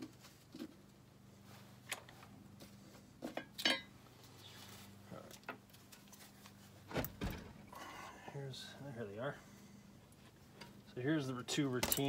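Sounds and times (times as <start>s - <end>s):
metal parts clicking and clinking: 11.8s - 12.0s.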